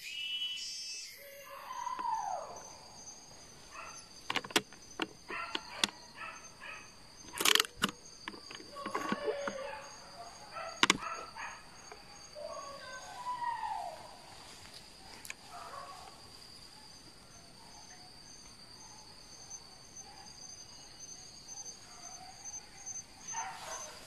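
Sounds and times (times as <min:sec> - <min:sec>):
forest insects droning: 0:00.0 - 0:24.0.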